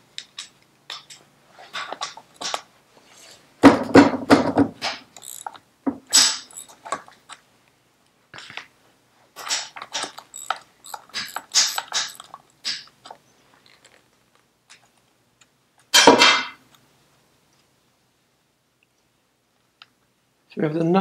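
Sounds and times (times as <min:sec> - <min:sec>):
spanner clicking on nut: 0:05.1 - 0:05.6, 0:06.2 - 0:06.8, 0:09.4 - 0:12.9
loud metallic clatter: 0:09.4 - 0:12.8.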